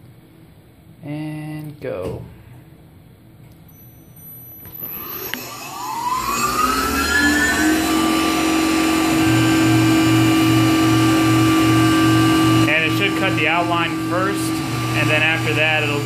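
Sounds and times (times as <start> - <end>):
mill spindle whine: 3.8 - 16.0
pulsing low hum: 5.7 - 15.6.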